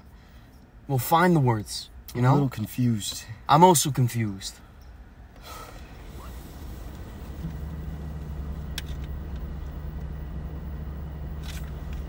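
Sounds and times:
low steady hum: 0.0s - 12.0s
car cabin rumble: 5.3s - 12.0s.

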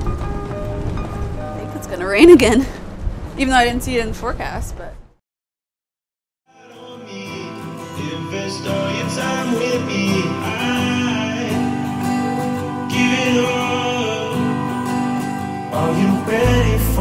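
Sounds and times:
guitar-led song: 6.5s - 17.0s.

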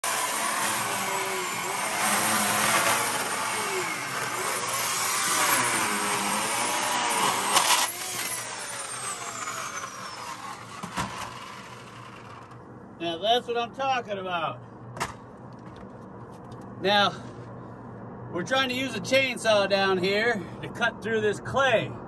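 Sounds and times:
electric chainsaw cutting: 0.0s - 12.6s.

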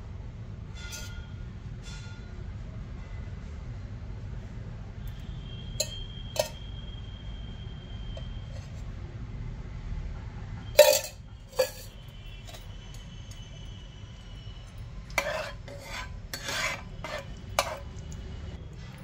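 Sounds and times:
steel bowl and spoon clinking: 0.8s - 2.2s, 5.1s - 6.8s, 10.8s - 19.0s.

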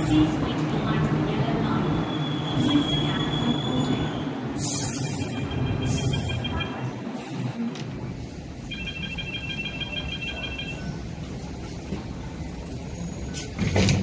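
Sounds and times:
tram low rumble: 0.0s - 14.0s
rapid high electronic beeps: 4.9s - 6.8s, 8.7s - 11.0s.

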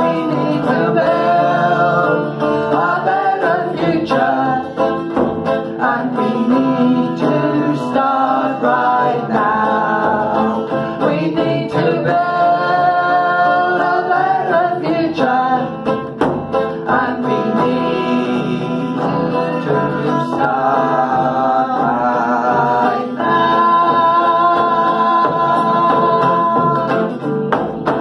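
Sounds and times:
woman and man singing: 0.0s - 27.3s
acoustic guitar strumming: 0.0s - 28.0s
frame drum beaten: 0.0s - 28.0s.

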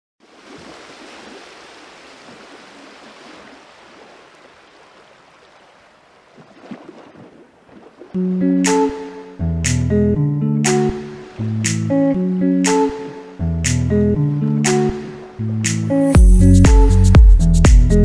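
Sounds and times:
ocean surf washing onto beach: 0.2s - 9.3s
strummed guitar music: 8.2s - 18.0s.

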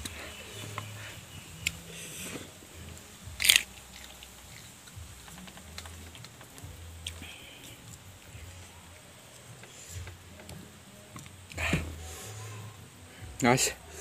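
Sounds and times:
closed-mouth humming: 0.0s - 14.0s
chewing and crunching: 2.9s - 8.7s.

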